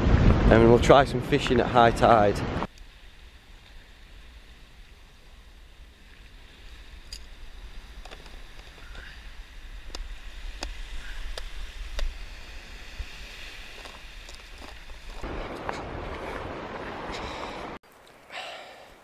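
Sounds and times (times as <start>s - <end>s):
wind rumbling on microphone: 0.0s - 17.8s.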